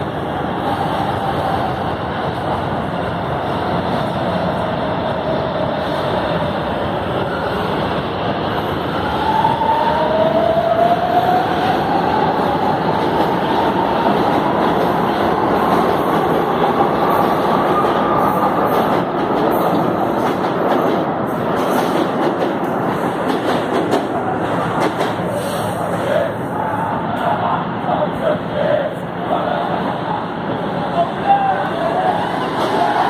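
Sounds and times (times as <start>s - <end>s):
clacking at rail joints: 21.6s - 25.3s.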